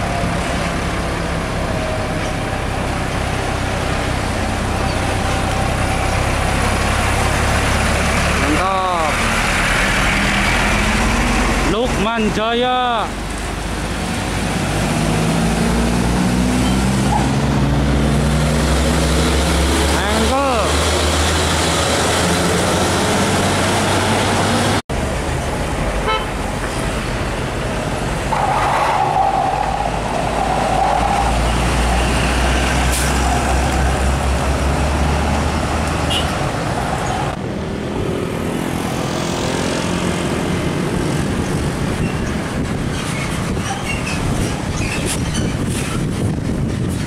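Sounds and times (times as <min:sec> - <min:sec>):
diesel trucks driving past: 0:00.0 - 0:47.0
vehicle horn: 0:26.0 - 0:26.4, 0:36.1 - 0:36.4.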